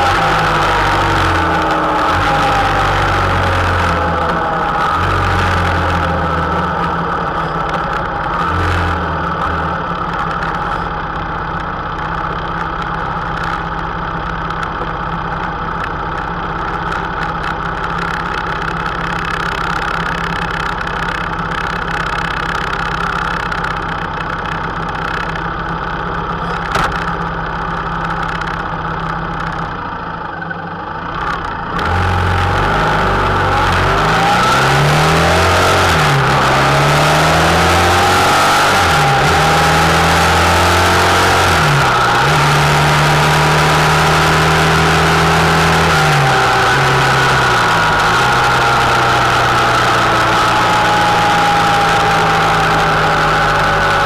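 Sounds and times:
motorcycle accelerating: 0.0s - 54.0s
motorcycle engine idling: 9.2s - 31.7s.

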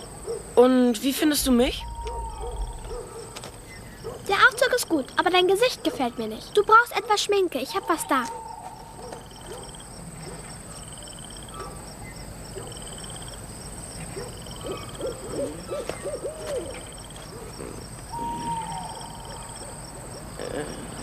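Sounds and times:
insects chirping: 0.0s - 21.0s
owl hooting: 1.8s - 4.4s, 14.5s - 20.9s.

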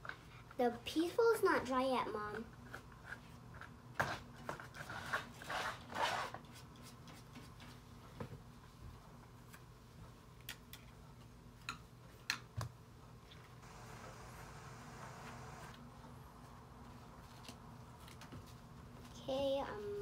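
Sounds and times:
faint steady hum: 8.1s - 20.0s.

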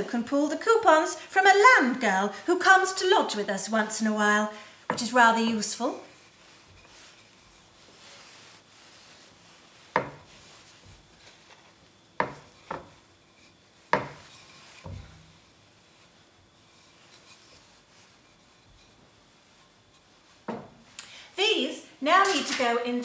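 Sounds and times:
rolling pin rubbing on dough: 0.1s - 21.0s
rolling pin knocking on board: 9.9s - 10.3s, 12.2s - 13.0s, 13.9s - 14.2s.

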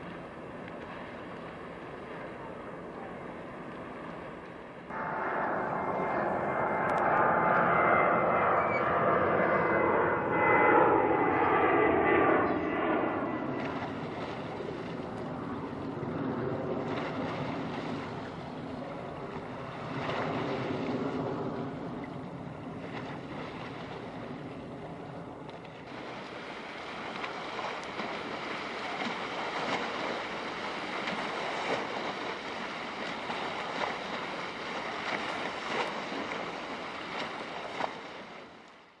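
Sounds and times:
wind and water rushing: 0.0s - 8.8s, 13.2s - 39.0s
engine drone: 0.0s - 38.8s.

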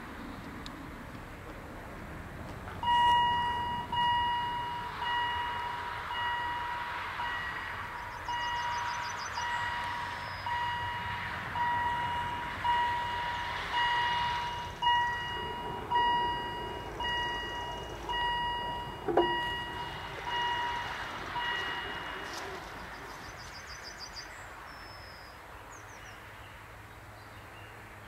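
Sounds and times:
level crossing warning bell: 2.8s - 23.2s.

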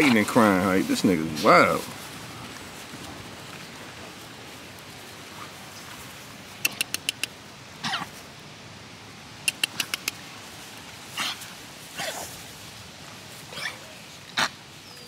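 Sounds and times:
sharp clicks: 6.6s - 7.4s, 9.5s - 10.2s.

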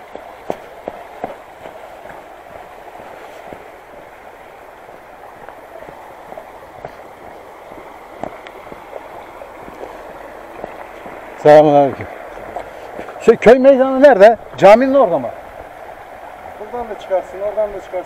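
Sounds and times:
footsteps on path: 0.0s - 13.2s.

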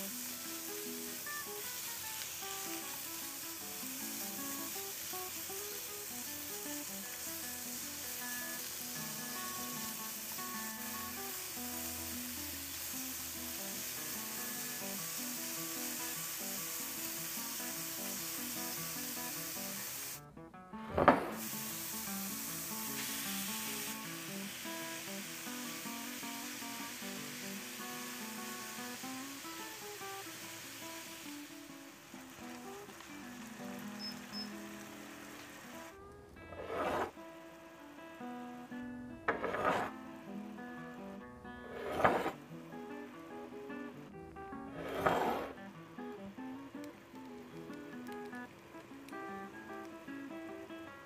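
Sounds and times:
meat sizzling in a frying pan: 0.0s - 20.2s, 21.3s - 35.9s.

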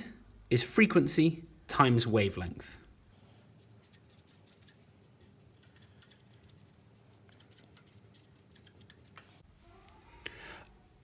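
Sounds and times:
marker scratching on paper: 3.6s - 9.4s.

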